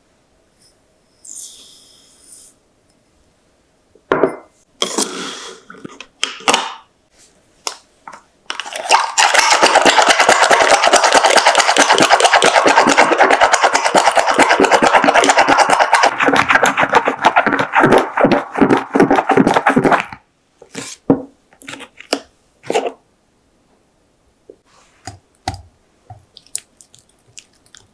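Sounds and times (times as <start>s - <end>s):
whisk rattling in plastic cup: 8.5s - 20.2s.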